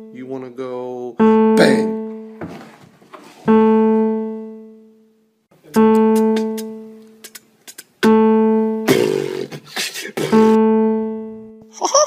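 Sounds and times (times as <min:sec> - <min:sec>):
ringing piano note: 0:01.2 - 0:02.4, 0:03.5 - 0:05.2, 0:08.0 - 0:08.9, 0:10.4 - 0:11.7.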